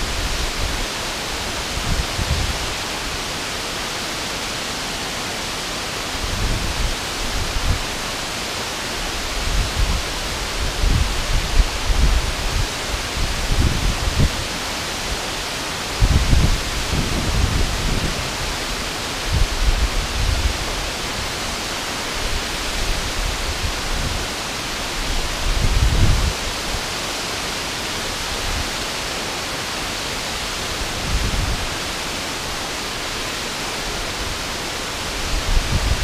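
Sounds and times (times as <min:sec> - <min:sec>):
wind buffeting microphone: 0:00.0 - 0:02.8, 0:06.2 - 0:08.0, 0:09.2 - 0:14.5, 0:16.0 - 0:21.4, 0:24.9 - 0:26.8, 0:30.7 - 0:31.8, 0:34.1 - 0:36.0
river water rushing over dam: 0:00.0 - 0:36.0.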